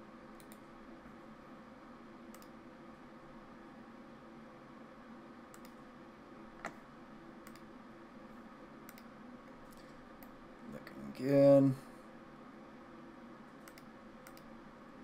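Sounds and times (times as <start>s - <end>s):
faint steady hum: 0.0s - 15.0s
computer mouse clicking: 0.3s - 0.7s, 2.3s - 2.6s, 5.5s - 5.8s, 7.4s - 7.7s, 8.9s - 9.1s, 13.6s - 14.5s.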